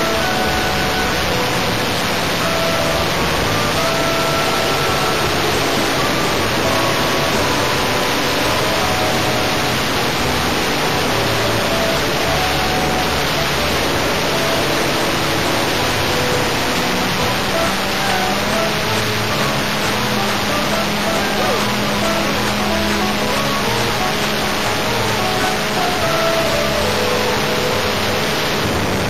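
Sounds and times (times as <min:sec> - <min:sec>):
wind over microphone: 0:27.4 - 0:29.0.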